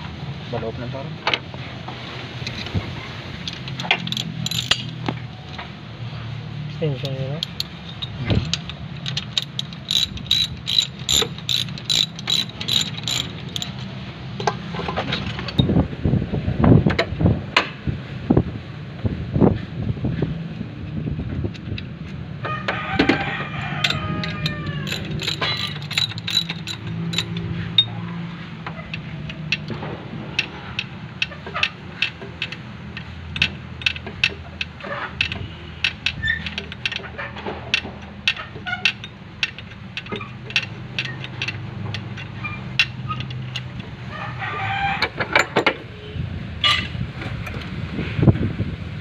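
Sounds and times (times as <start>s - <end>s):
metal tools clinking on engine parts: 2.4s - 5.7s, 7.0s - 15.7s, 23.6s - 43.9s.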